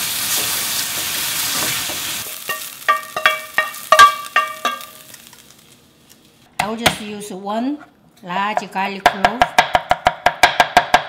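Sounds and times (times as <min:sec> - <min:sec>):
meat and mushrooms sizzling in pan: 0:00.0 - 0:05.8.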